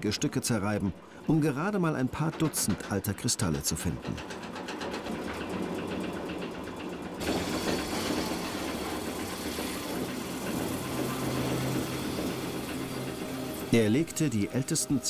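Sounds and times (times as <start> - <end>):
rock crusher clattering: 7.2 - 13.8.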